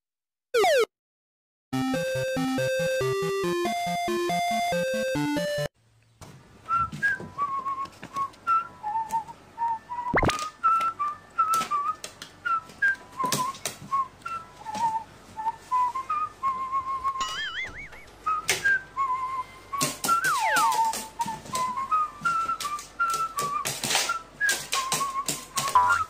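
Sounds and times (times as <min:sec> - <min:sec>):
person whistling a tune: 0:06.7 - 0:26.0.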